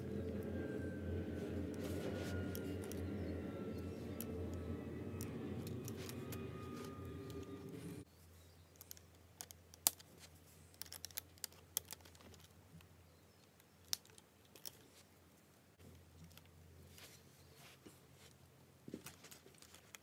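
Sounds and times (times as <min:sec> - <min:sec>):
loud steady hum: 0:00.0 - 0:08.0
plastic pieces clicking together: 0:08.7 - 0:10.1, 0:10.7 - 0:12.5, 0:13.5 - 0:14.8.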